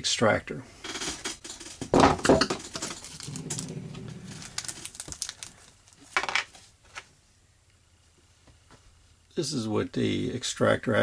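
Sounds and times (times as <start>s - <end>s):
rustling: 2.6s - 7.1s.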